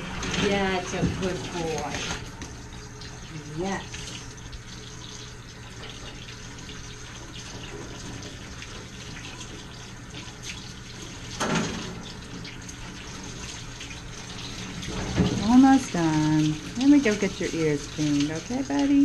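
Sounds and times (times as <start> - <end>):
hose water spraying: 0.0 - 2.5, 3.2 - 19.0.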